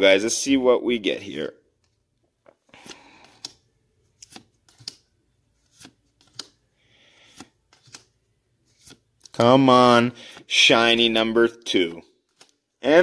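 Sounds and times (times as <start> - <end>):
trading cards snapping and sliding: 2.7 - 6.6, 7.2 - 9.5, 12.2 - 12.6.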